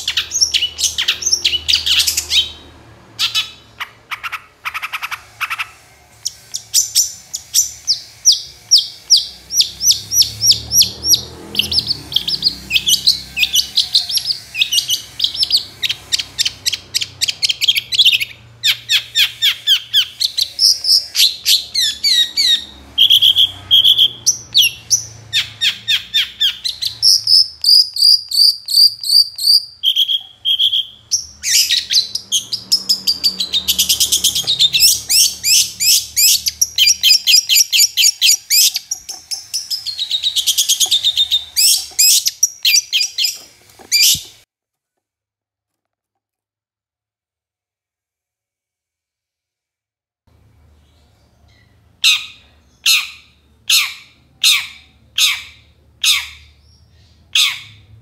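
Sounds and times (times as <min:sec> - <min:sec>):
bird whistles: 0:00.0 - 0:02.6, 0:03.2 - 0:44.4
bird chattering song: 0:00.0 - 0:44.4, 0:50.8 - 0:58.0.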